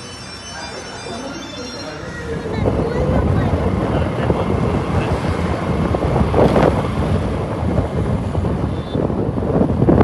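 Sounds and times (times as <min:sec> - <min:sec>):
wind buffeting microphone: 0:02.2 - 0:10.0
motorcycle and road noise: 0:02.6 - 0:10.0.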